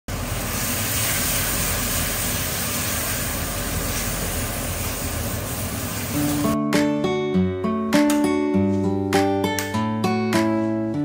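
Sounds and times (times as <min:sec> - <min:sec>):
chicken feet sizzling in a wok: 0:00.1 - 0:06.5.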